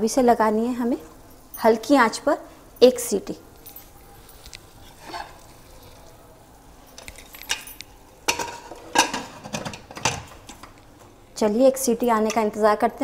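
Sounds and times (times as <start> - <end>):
metal lid scraping: 4.8 - 6.0, 8.3 - 10.8
metal lid clanking: 5.0 - 5.4, 7.0 - 10.8, 12.2 - 12.6.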